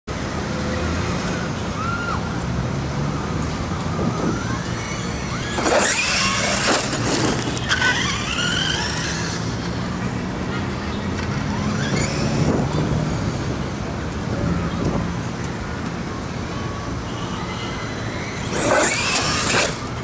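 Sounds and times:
electric motor whine: 0:03.9 - 0:09.7, 0:18.4 - 0:20.0.

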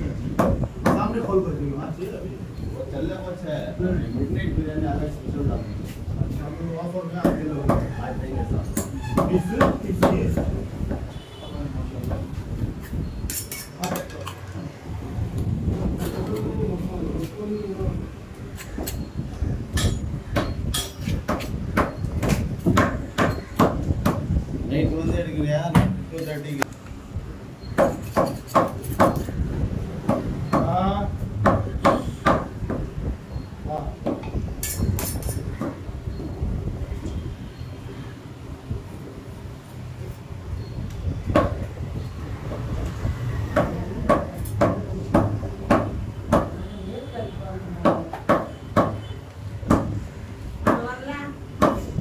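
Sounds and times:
cleaver chopping on wooden block: 0:21.2 - 0:24.2, 0:43.6 - 0:46.6, 0:47.8 - 0:49.0, 0:49.7 - 0:50.0, 0:51.6 - 0:51.9.

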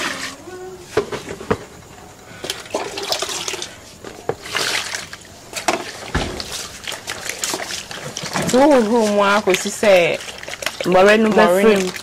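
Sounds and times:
water splashing and sloshing: 0:02.4 - 0:12.0
liquid pouring through strainer: 0:02.6 - 0:03.7, 0:04.4 - 0:12.0.

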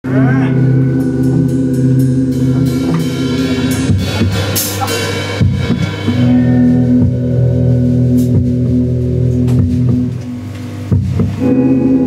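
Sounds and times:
rock band playing: 0:00.0 - 0:12.0
drum fill: 0:00.8 - 0:11.8
cymbal crashes: 0:00.9 - 0:07.3.

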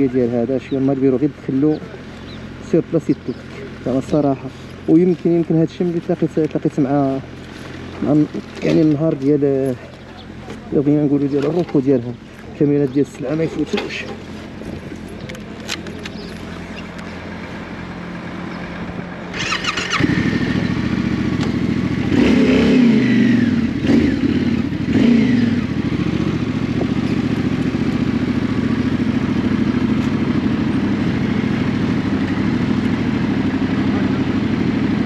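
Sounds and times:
motorcycle engine revving: 0:00.0 - 0:35.0
motorcycle starter whirr: 0:19.3 - 0:22.4.

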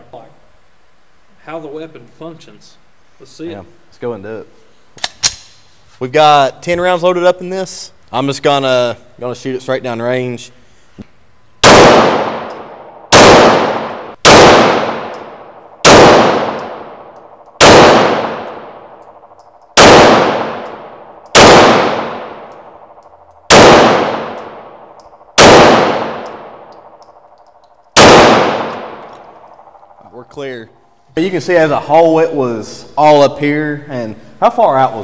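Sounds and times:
pistol shots echoing: 0:11.6 - 0:30.0.

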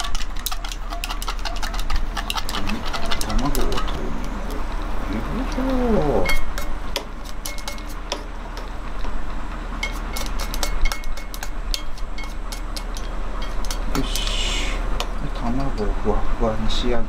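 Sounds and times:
steady low hum: 0:00.0 - 0:17.0
chopsticks tapping metal cup: 0:06.2 - 0:08.7, 0:09.8 - 0:14.3, 0:15.0 - 0:15.9.

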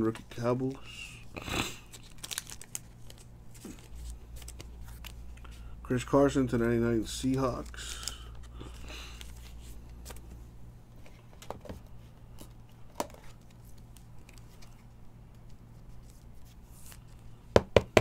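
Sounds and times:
plastic rustling: 0:01.4 - 0:05.6.

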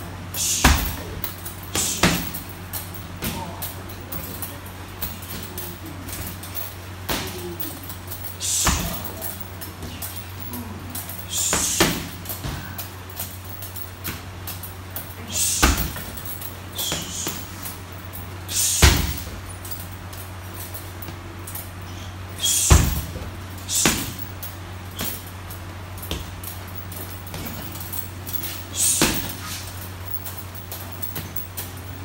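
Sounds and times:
steady low hum: 0:00.0 - 0:32.0
punches hitting heavy bag: 0:00.4 - 0:02.5, 0:05.0 - 0:10.2, 0:10.9 - 0:12.9, 0:15.3 - 0:17.5, 0:18.6 - 0:19.4, 0:22.4 - 0:24.3, 0:26.0 - 0:29.7.

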